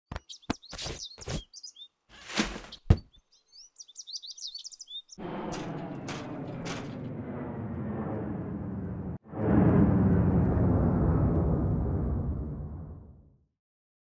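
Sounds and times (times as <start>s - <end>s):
birds chirping: 0.1s - 5.8s
low rumbling noise: 5.2s - 13.4s.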